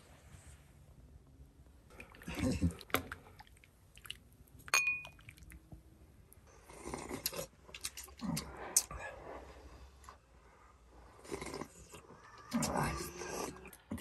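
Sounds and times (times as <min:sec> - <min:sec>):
people slurping broth: 0:01.9 - 0:04.1, 0:06.5 - 0:09.5, 0:11.1 - 0:13.8
metal ladle clinking on bowl: 0:04.7 - 0:05.2.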